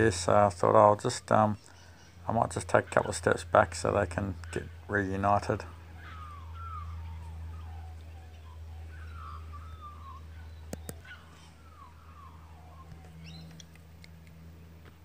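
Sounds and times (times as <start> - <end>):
birds calling: 0.0 - 15.0
steady low hum: 0.0 - 15.0
sharp clicks: 10.6 - 11.1, 12.8 - 14.9.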